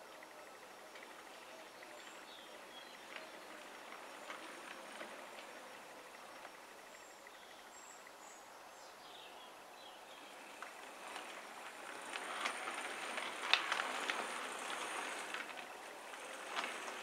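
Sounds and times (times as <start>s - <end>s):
model train wheel rumble: 0.0s - 17.0s
clicks over rail joints: 10.3s - 17.0s.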